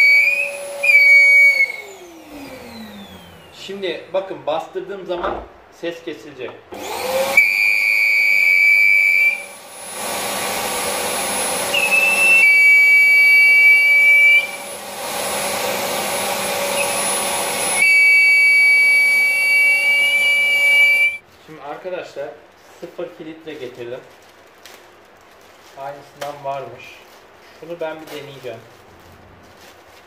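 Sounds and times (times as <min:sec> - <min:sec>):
high-pitched air leak whistle: 0:00.0 - 0:02.0, 0:07.2 - 0:09.6, 0:11.3 - 0:14.8, 0:16.1 - 0:21.2
vacuum cleaner running: 0:00.0 - 0:03.7, 0:06.7 - 0:21.2.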